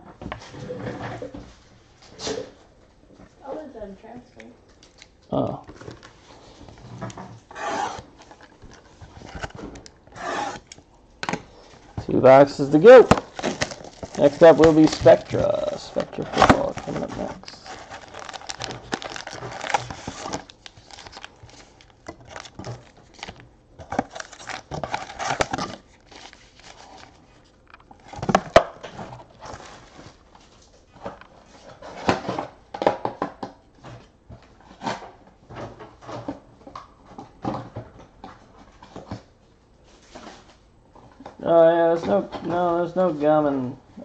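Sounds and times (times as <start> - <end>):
wrappers crinkling: 12.0 - 28.4.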